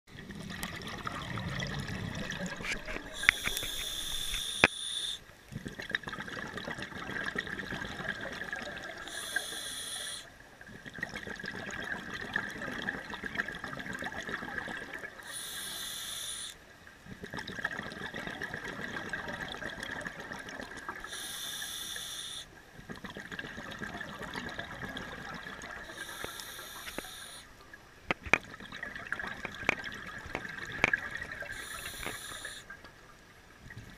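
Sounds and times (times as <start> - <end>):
bubbling exhale: 0.4 - 5.2, 6.2 - 10.3, 14.1 - 16.6, 20.7 - 27.5, 30.5 - 32.7
diver inhaling through regulator: 3.1 - 5.2, 9.0 - 10.3, 15.2 - 16.6, 21.0 - 22.5, 25.8 - 27.5, 31.5 - 32.7.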